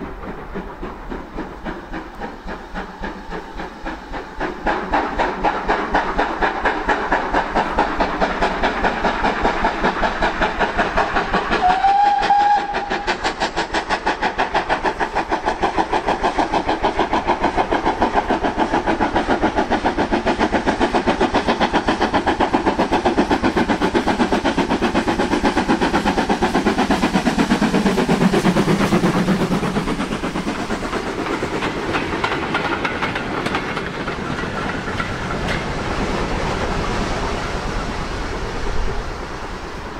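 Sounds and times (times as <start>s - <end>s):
steam locomotive exhaust beats: 0.0s - 39.9s
steam whistle: 11.6s - 13.1s.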